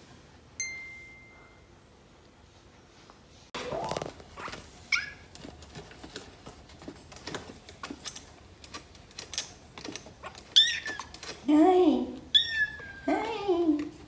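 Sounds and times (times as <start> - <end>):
kittens scuffling on tile: 3.8 - 11.7
kitten squeak: 10.5 - 11.1, 12.3 - 13.2.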